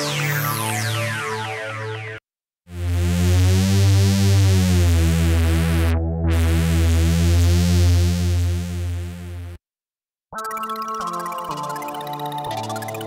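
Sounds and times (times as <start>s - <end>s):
pulsing deep synth bass: 0.0s - 9.6s.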